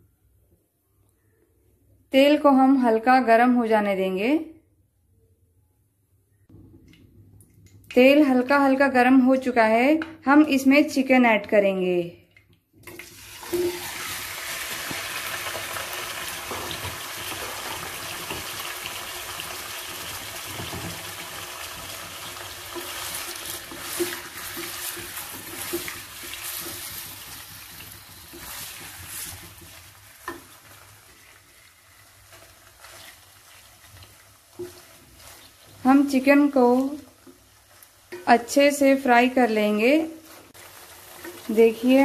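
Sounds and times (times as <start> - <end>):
chicken sizzling in hot oil: 13.0 - 42.0
wooden spatula scraping pan: 22.4 - 38.3.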